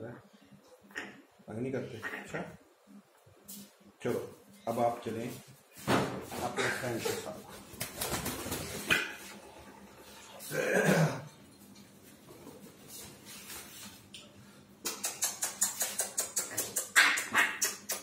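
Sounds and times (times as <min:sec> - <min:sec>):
parrot wings fluttering: 0:07.5 - 0:09.3.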